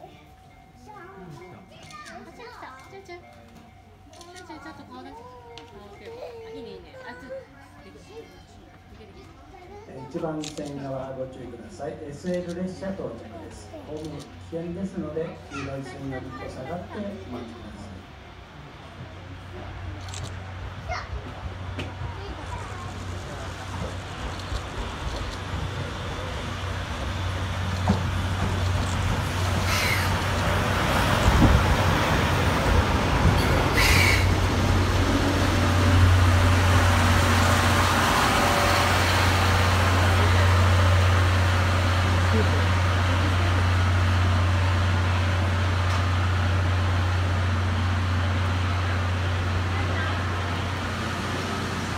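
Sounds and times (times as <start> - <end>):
steam locomotive rolling: 0.0 - 51.9
steam hiss: 33.4 - 44.1.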